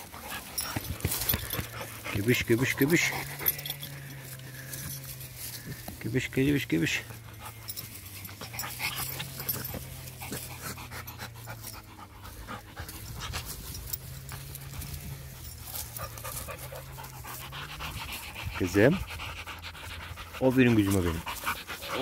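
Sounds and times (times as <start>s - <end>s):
dry leaves crackling and rustling: 0.0s - 10.8s, 12.3s - 17.5s
dog panting: 0.0s - 22.0s.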